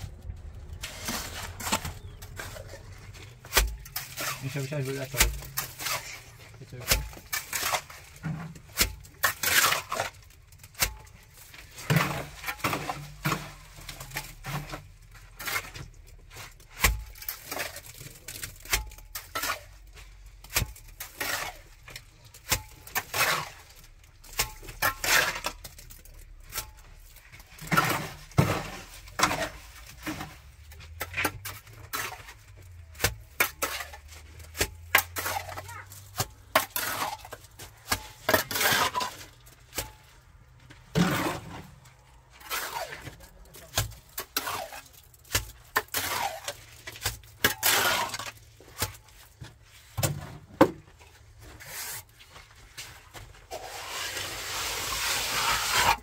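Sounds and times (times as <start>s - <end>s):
hand tools striking hard material: 3.3s - 11.2s, 16.5s - 19.8s, 20.4s - 40.0s.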